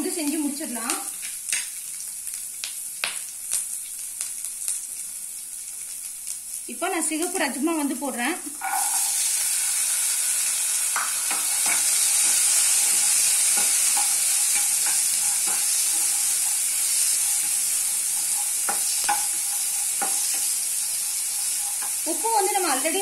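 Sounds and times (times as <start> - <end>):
beans sizzling in hot oil: 0.0 - 23.0
spatula scraping and knocking pan: 11.0 - 22.1.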